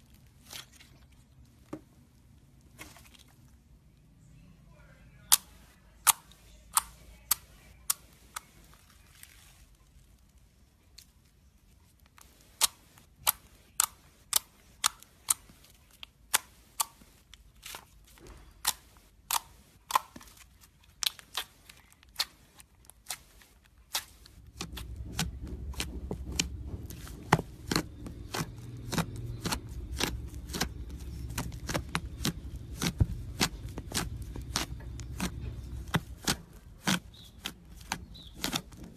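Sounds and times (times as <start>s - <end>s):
low rumble: 24.4s - 36.8s.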